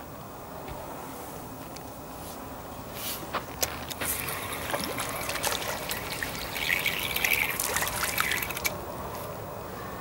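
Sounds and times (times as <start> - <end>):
trickling water: 3.9 - 8.8
fish splashing in water: 4.0 - 8.8.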